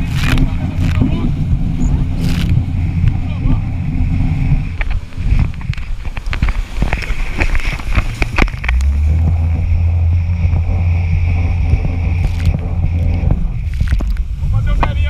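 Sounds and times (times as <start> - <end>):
water spray crackling: 0.0 - 3.2, 10.4 - 14.4
jet ski engine drone: 0.0 - 15.0
wind buffeting microphone: 0.0 - 15.0.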